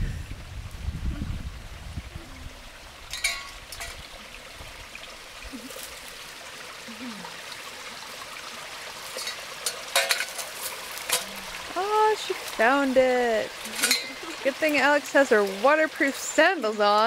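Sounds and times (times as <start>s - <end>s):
stream trickling: 0.0s - 17.0s
metal pot clinking on stones: 3.1s - 4.1s, 9.0s - 11.4s, 13.5s - 16.2s.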